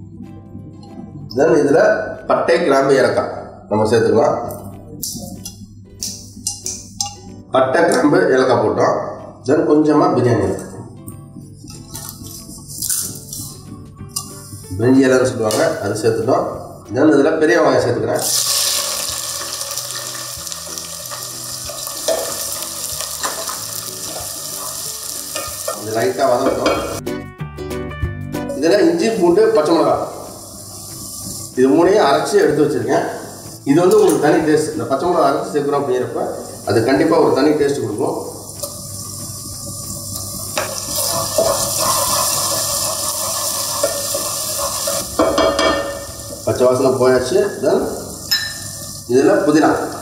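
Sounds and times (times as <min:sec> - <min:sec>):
onions sizzling in oil: 0:18.2 - 0:27.0, 0:30.0 - 0:32.4, 0:33.1 - 0:33.8, 0:38.2 - 0:50.0.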